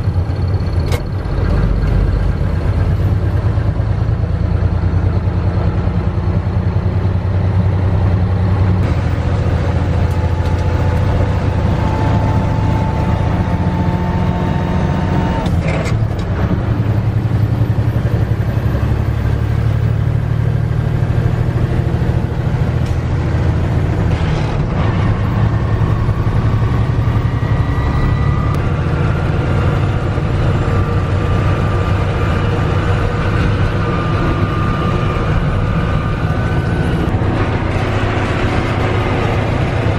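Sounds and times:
diesel truck engine pulling: 0.0s - 39.9s
thin whine: 24.4s - 39.9s.

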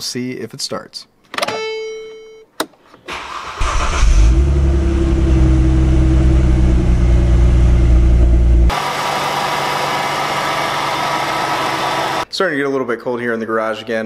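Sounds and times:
car engine starting and idling: 3.1s - 12.2s.

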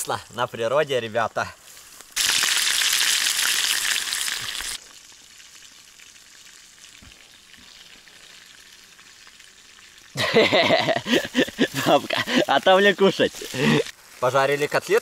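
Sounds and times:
meat sizzling in a frying pan: 1.7s - 10.2s.

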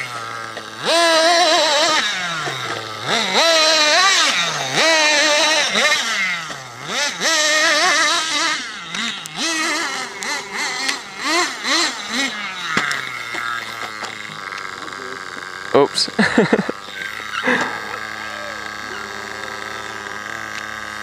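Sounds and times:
toy car crashing: 0.0s - 15.7s, 16.7s - 21.0s
small engine revving: 0.0s - 21.0s.

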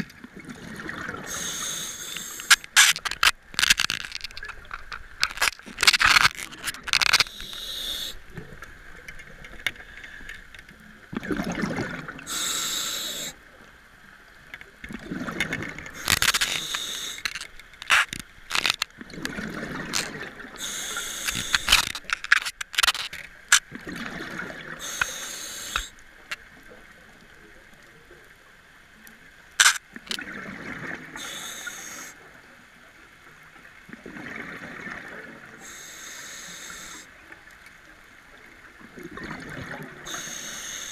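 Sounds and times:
gurgling exhaled bubbles: 0.0s - 2.5s, 11.1s - 12.4s, 14.9s - 17.4s, 18.5s - 22.2s, 23.7s - 25.0s, 30.0s - 31.2s, 33.9s - 35.6s, 38.8s - 40.3s
regulator hiss on inhale: 1.2s - 3.8s, 7.1s - 8.3s, 12.2s - 13.4s, 15.9s - 17.5s, 20.6s - 23.1s, 24.8s - 26.0s, 31.2s - 32.2s, 35.6s - 37.2s, 40.0s - 40.9s
sharp clicks: 1.4s - 8.0s, 16.0s - 18.9s, 20.0s - 23.7s, 29.6s - 30.2s.

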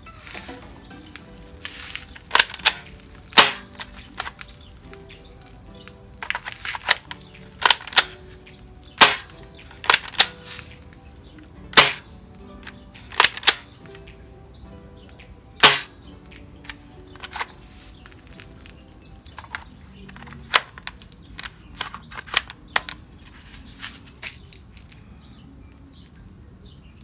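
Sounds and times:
airsoft rifle cocking clacks: 2.1s - 5.1s, 5.8s - 8.2s, 9.0s - 10.8s, 11.7s - 12.0s, 12.6s - 14.0s, 15.6s - 15.9s, 19.4s - 23.0s
airsoft rifle shot: 2.3s - 3.9s, 6.9s - 8.2s, 9.0s - 10.4s, 11.8s - 12.1s, 13.1s - 13.7s, 15.6s - 15.9s.

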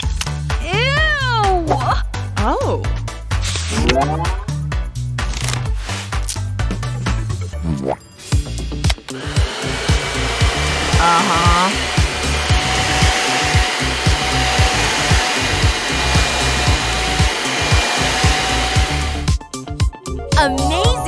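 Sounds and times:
background music with beat: 0.0s - 21.0s
vacuum cleaner whining: 9.1s - 19.3s.

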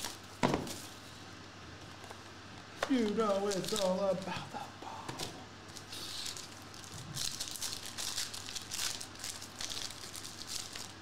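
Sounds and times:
foil wrapper crinkling: 2.9s - 4.4s, 5.7s - 11.0s.

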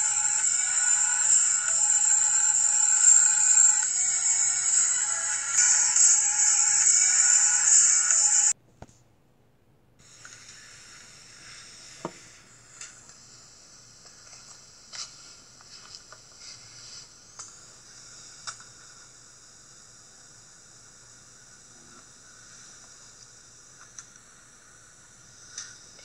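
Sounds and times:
faint steady hiss: 0.0s - 26.0s
soft handling clicks and rustles: 14.0s - 17.6s.

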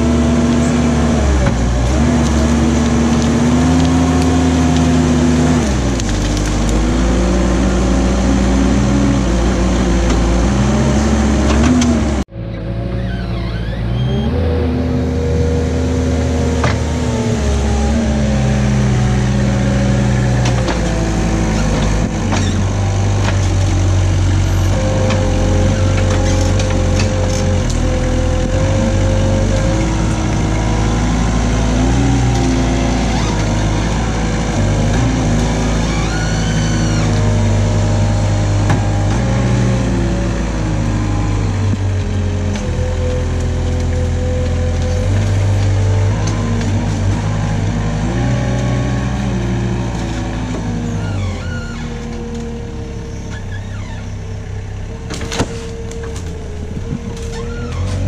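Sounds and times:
loader engine and hydraulics: 0.0s - 58.0s
branches crackling: 0.2s - 7.6s.

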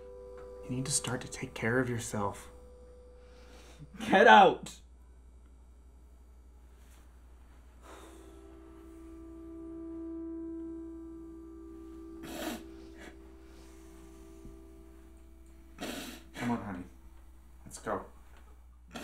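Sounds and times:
held musical note: 0.0s - 4.0s, 7.8s - 18.8s
man snorting or sniffing: 7.8s - 8.3s, 12.2s - 13.1s, 15.8s - 16.4s.

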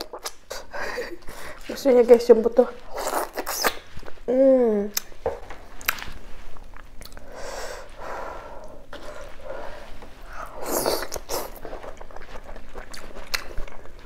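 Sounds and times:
chewing and wet mouth noises: 0.0s - 1.8s, 4.9s - 7.3s, 10.2s - 14.0s.

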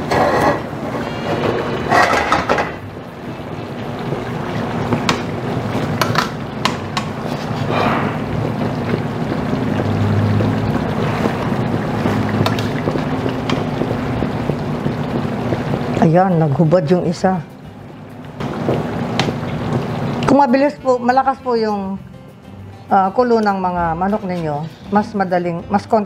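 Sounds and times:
metal tongs scraping a pan: 1.3s - 2.6s
sauce simmering: 2.8s - 21.4s.

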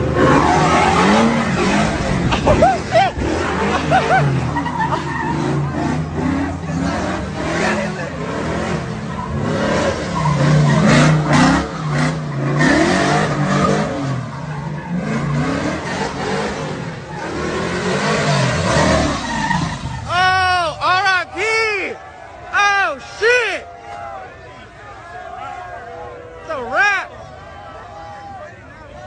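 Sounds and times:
truck engine revving: 0.0s - 23.4s
tyres skidding on wet pavement: 0.0s - 29.0s.

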